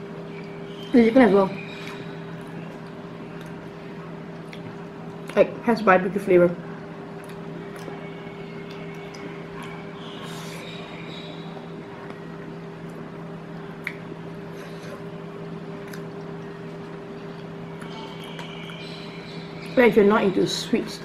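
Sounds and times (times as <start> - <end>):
chewing: 1.8 - 3.7, 4.3 - 5.4, 7.2 - 10.7, 15.8 - 18.8.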